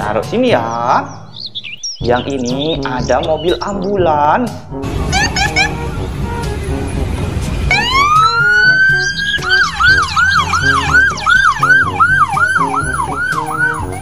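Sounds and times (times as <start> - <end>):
ambulance siren yelping: 5.0 - 6.6, 7.7 - 14.0.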